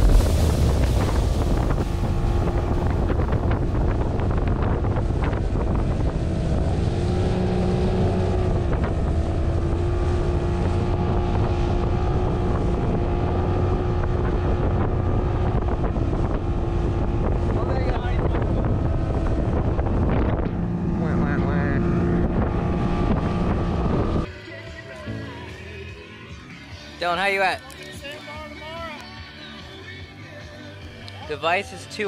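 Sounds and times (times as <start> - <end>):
motorboat engine rumbling: 0.0 - 24.3
wind buffeting microphone: 0.0 - 24.3.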